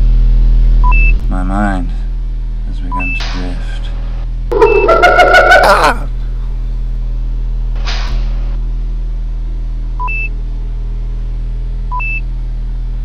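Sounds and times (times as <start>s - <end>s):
electronic hum: 4.2s - 7.6s
two-note computer blips: 4.5s - 5.6s.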